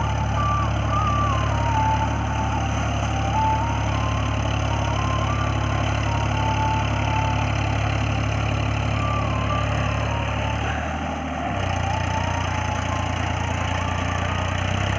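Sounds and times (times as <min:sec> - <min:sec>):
tractor diesel engine running: 0:00.0 - 0:14.9.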